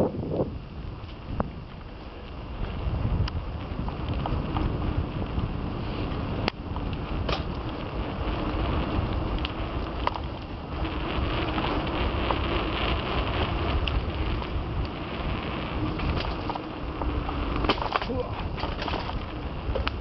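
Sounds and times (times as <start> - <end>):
mountain bike rattling on dirt: 0.0 - 20.0
wind buffeting microphone: 0.0 - 20.0
bike knocking over bumps: 6.6 - 8.2, 15.7 - 20.0.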